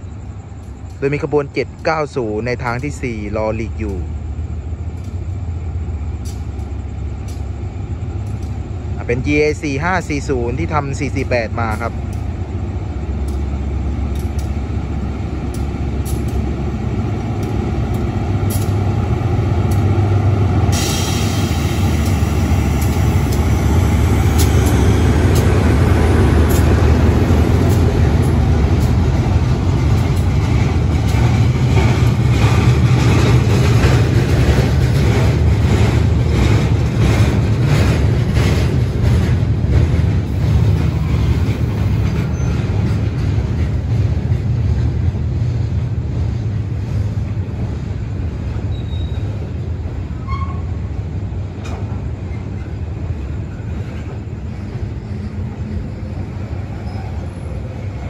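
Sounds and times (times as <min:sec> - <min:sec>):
train wheels clacking on rails: 0:00.0 - 0:05.4, 0:06.2 - 0:58.0
diesel locomotive engine rumbling: 0:00.0 - 0:58.0
air hissing: 0:20.6 - 0:25.6.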